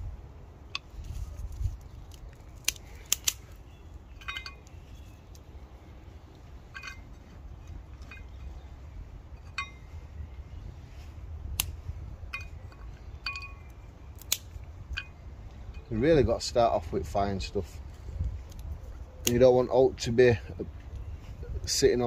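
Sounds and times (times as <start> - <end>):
wind rumble on microphone: 0.0 - 22.0
twigs clinking on metal: 0.6 - 16.8, 18.3 - 20.2
twig snapping: 0.7 - 3.6, 11.5 - 11.8, 14.1 - 15.0, 18.2 - 19.4.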